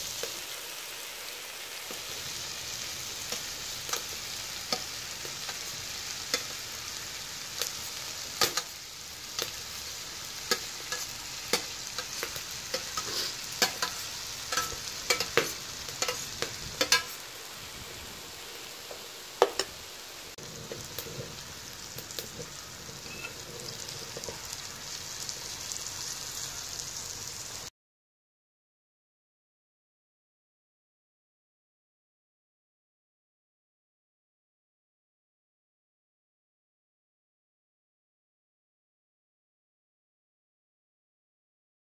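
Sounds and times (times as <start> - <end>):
pasta sizzling in a frying pan: 0.0 - 27.7.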